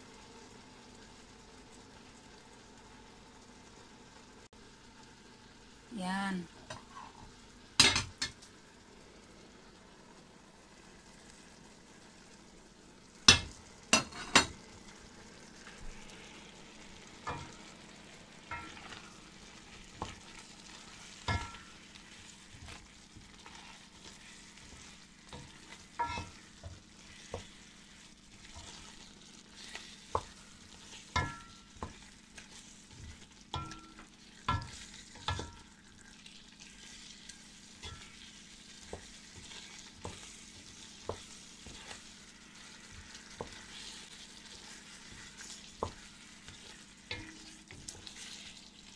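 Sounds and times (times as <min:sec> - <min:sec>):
faint sizzle: 0:00.0 - 0:48.9
wooden spoon knocking on pan: 0:13.3 - 0:14.6, 0:17.2 - 0:17.6, 0:21.2 - 0:21.8, 0:24.7 - 0:27.6, 0:30.1 - 0:32.1, 0:33.0 - 0:35.7, 0:38.9 - 0:40.3, 0:41.0 - 0:42.0, 0:42.9 - 0:43.7, 0:45.1 - 0:47.9.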